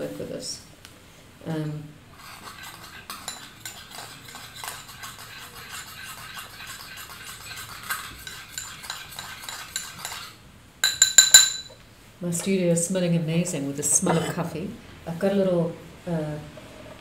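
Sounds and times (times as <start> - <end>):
spoon clinking in ceramic bowl: 10.8 - 11.8.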